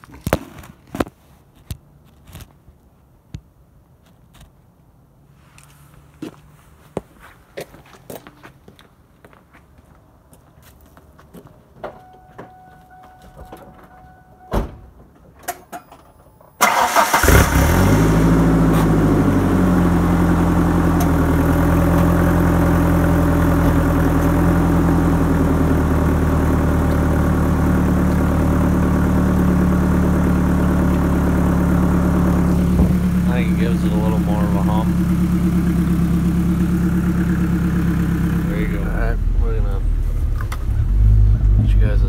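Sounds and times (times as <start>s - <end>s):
truck engine cranking and starting: 15.5s - 42.0s
truck engine idling: 16.6s - 42.0s.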